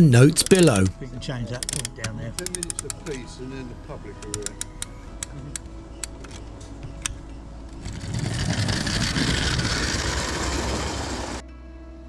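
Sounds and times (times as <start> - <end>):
sharp clicks: 1.6 - 3.2
model train wheels rumbling: 7.8 - 11.4.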